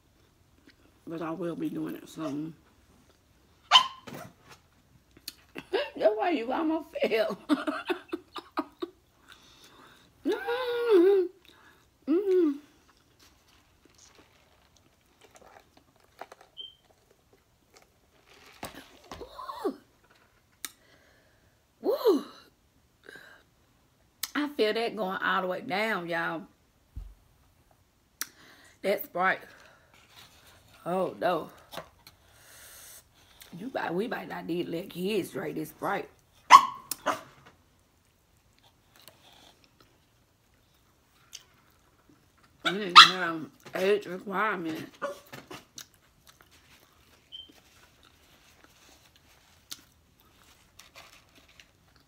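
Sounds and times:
dog barking: 3.7s - 4.1s, 36.5s - 37.4s, 43.0s - 43.2s
woman's wordless vocal reactions: 10.2s - 12.8s, 21.8s - 22.6s.

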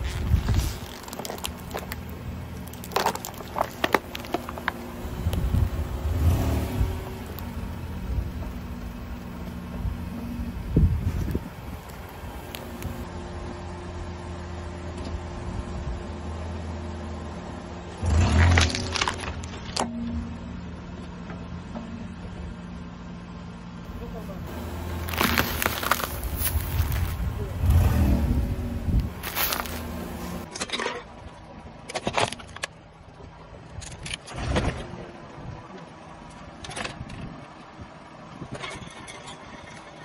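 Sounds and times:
tyre rumble on asphalt: 0.0s - 7.5s, 23.9s - 30.5s
car engine humming: 0.0s - 13.7s, 18.5s - 30.5s
plastic trays cracking under tyre: 0.1s - 5.4s, 18.4s - 19.8s, 24.9s - 27.3s
tyre crushing foam block: 25.0s - 27.3s, 29.2s - 30.0s.

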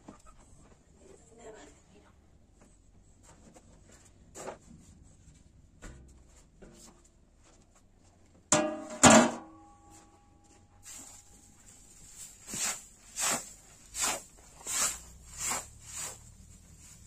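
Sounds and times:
metal tray clanking: 8.5s - 9.8s.

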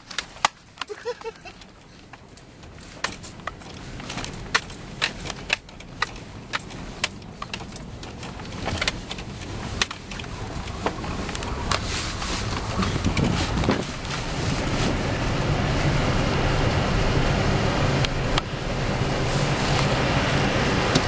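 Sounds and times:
knocks and rattles over bumps: 0.0s - 16.5s
truck engine and tyre rumble: 0.0s - 21.0s.

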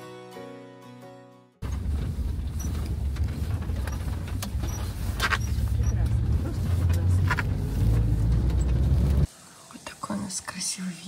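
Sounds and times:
background music: 0.0s - 1.6s
moving vehicle rumble: 1.6s - 9.3s.

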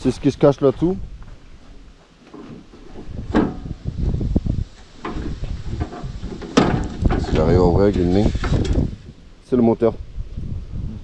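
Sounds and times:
plastic hood knocking and rattling: 5.0s - 7.6s.

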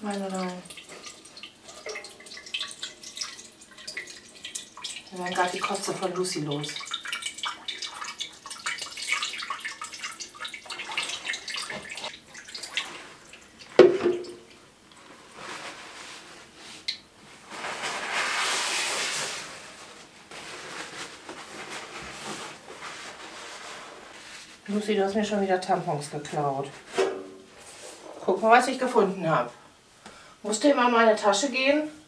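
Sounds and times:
water trickling and dripping: 0.0s - 15.1s.

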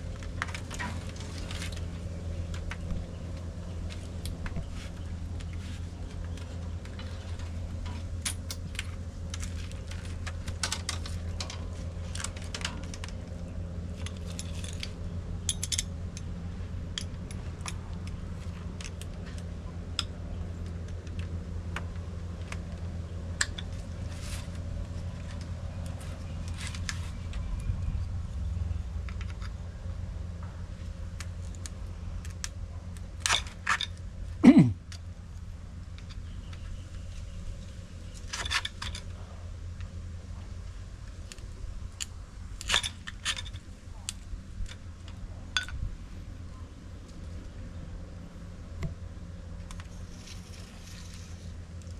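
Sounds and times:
bamboo strips and tool clicking: 0.0s - 16.3s, 16.9s - 27.8s
steady low hum: 0.0s - 51.9s.

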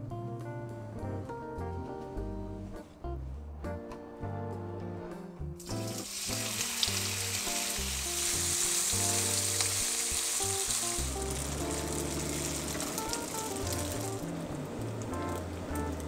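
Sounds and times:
background music: 0.0s - 16.0s
tofu sizzling in hot oil: 5.6s - 15.4s
spatula turning food in pan: 5.7s - 16.0s.

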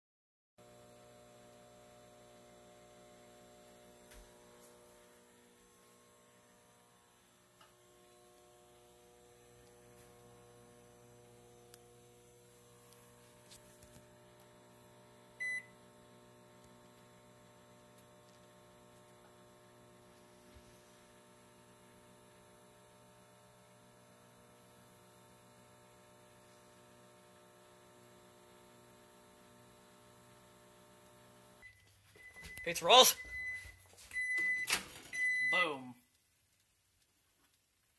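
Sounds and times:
microwave oven hum: 0.6s - 35.8s.

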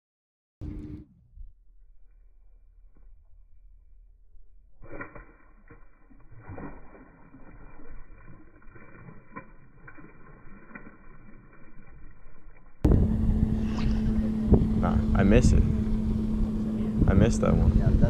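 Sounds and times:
engine hum: 0.6s - 18.0s
muffled water splashing: 0.6s - 18.0s
wind noise: 12.8s - 18.0s.

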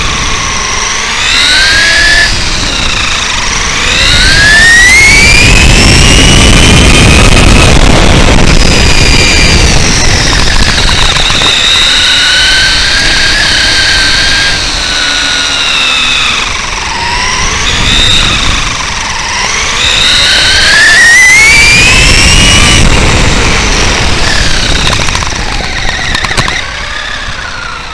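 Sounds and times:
electric motor whine: 0.0s - 27.9s.

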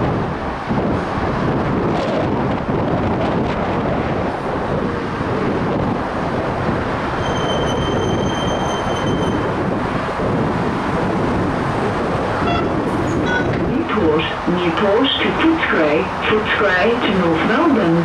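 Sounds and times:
train wheels and motors rumbling: 0.0s - 18.0s
high-pitched brake squeal: 7.2s - 9.5s, 12.5s - 13.5s.

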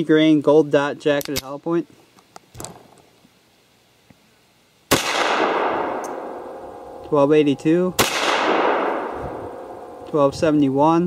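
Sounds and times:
pistol shot with echo: 4.9s - 7.0s, 8.0s - 10.0s.

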